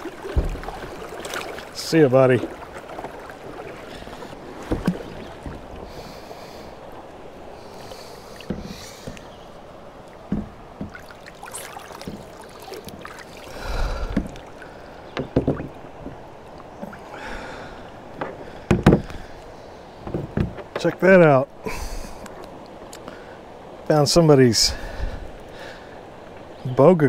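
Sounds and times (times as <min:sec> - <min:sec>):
water splashing and dripping: 0:00.0 - 0:20.9
knocks on plastic hull: 0:00.3 - 0:00.8, 0:15.2 - 0:16.2, 0:18.2 - 0:19.2
hiss of moving water: 0:05.7 - 0:09.5, 0:11.0 - 0:15.2, 0:21.6 - 0:22.4, 0:24.5 - 0:26.2.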